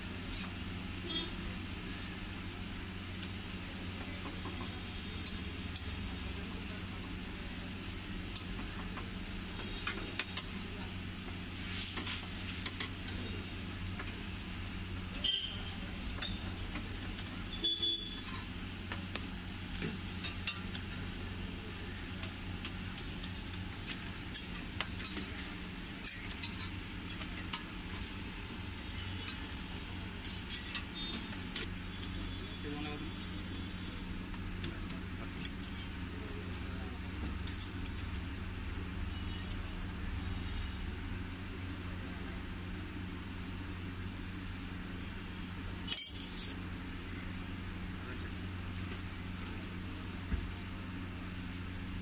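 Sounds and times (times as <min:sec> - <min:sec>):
bread sizzling in oil: 0:00.0 - 0:32.2
steel spatula scraping griddle: 0:24.3 - 0:28.1, 0:30.3 - 0:31.1, 0:45.9 - 0:46.6.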